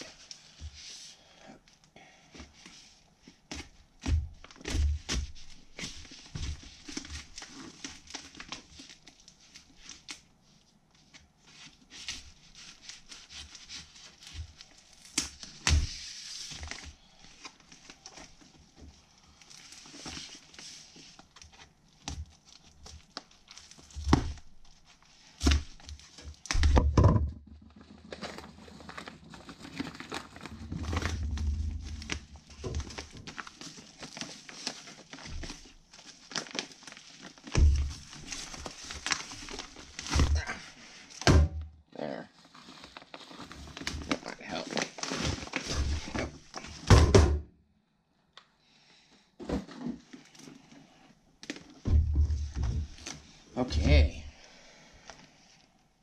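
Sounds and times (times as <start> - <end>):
plastic package crinkling and ripping: 4.0 - 26.8, 27.6 - 41.2, 42.4 - 46.9
package knocking on tabletop: 26.7 - 27.4.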